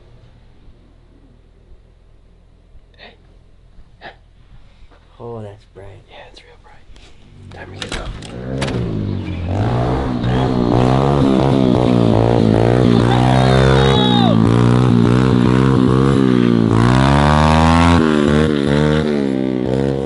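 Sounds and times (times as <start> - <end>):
small motorbike engine revving: 8.2 - 20.0.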